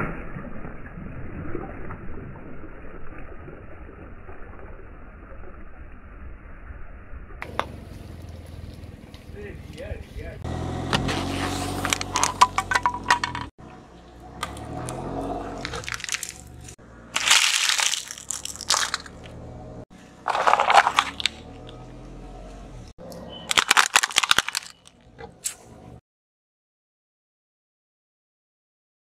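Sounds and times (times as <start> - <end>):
car engine running low: 7.4 - 17.2, 18.6 - 23.4
car tyre crushing plastic objects: 10.9 - 13.5, 14.4 - 19.4, 20.2 - 21.8, 23.1 - 25.7
plastic cracking and crunching: 15.6 - 19.3, 20.3 - 21.5, 23.5 - 25.0.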